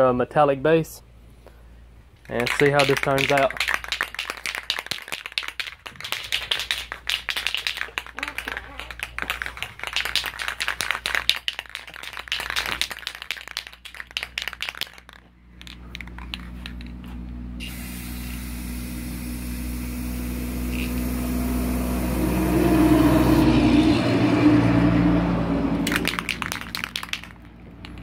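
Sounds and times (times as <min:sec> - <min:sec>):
spray can ball rattling: 0:02.2 - 0:22.0, 0:25.8 - 0:28.0
spray can hissing: 0:02.4 - 0:15.1, 0:17.6 - 0:23.0.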